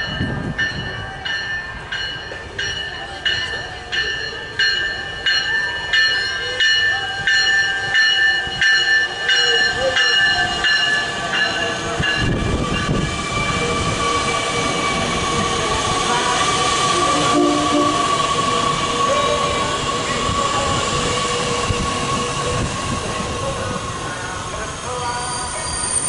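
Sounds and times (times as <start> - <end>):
train wheels rumbling on rails: 0.0 - 26.0
high-pitched wheel squeal: 25.0 - 26.0.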